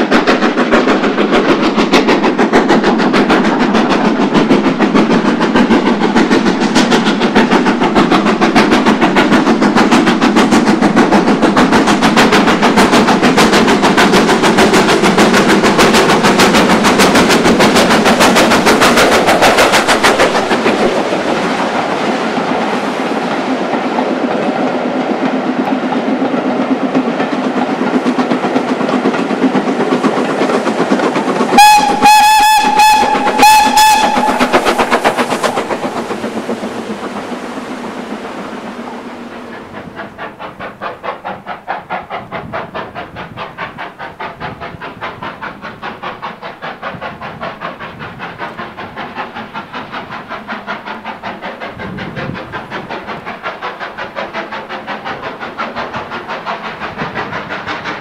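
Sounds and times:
distant locomotive exhaust beats: 0.0 - 58.0
steam locomotive exhaust beats: 0.0 - 58.0
steam whistle blasts: 31.5 - 35.8.

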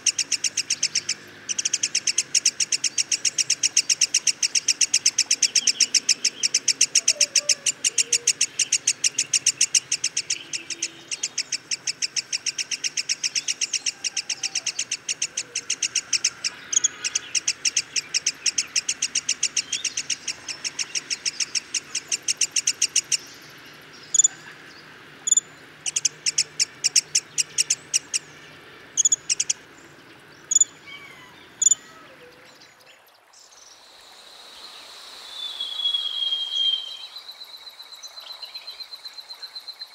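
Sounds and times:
bird calling high notes: 0.0 - 23.3.

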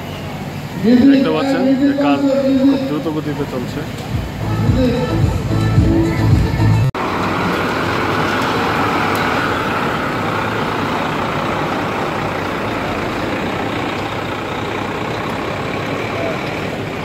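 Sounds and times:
truck diesel engine running: 0.0 - 17.0.

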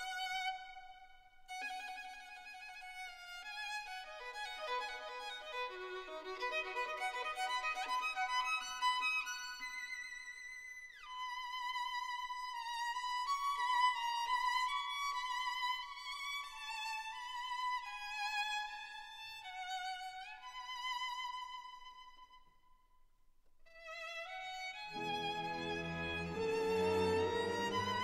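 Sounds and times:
solo violin melody: 0.0 - 10.3, 11.0 - 22.4, 23.7 - 28.0
lower musical accompaniment: 24.9 - 28.0.

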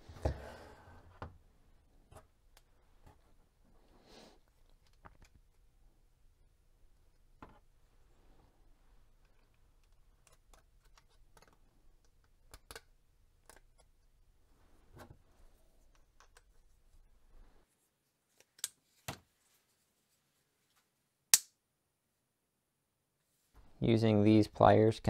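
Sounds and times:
plastic parts clicking together: 9.2 - 14.0.

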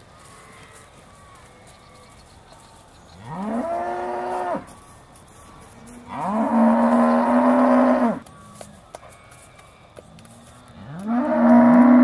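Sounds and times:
cows mooing: 3.2 - 4.6, 6.0 - 8.2, 10.8 - 12.0.

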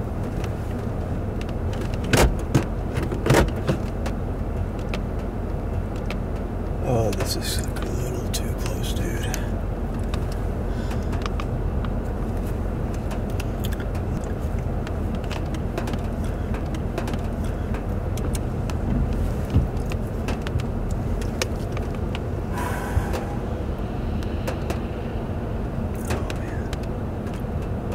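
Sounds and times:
storm wind rumble: 17.6 - 27.9.

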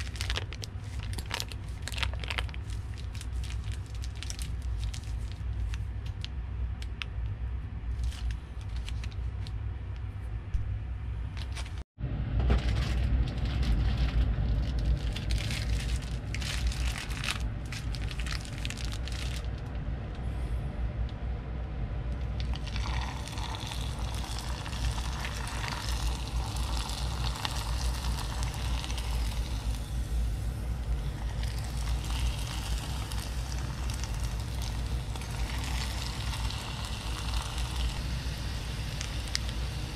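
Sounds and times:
plastic bag crinkling and scraping: 0.0 - 5.9, 7.9 - 9.5, 12.5 - 19.6
steady low rumble: 0.0 - 39.9
dough sizzling in hot oil: 22.6 - 30.5, 31.1 - 39.9.

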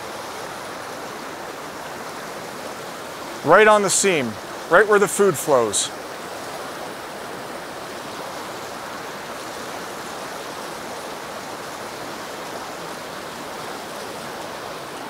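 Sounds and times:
stream rushing over rocks: 0.0 - 15.0.

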